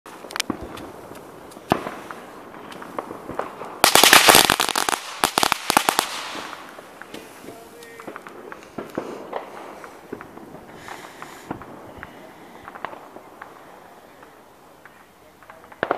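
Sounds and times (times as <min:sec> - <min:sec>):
firework crackling: 0:00.1 - 0:15.9
firework pops: 0:00.1 - 0:15.9.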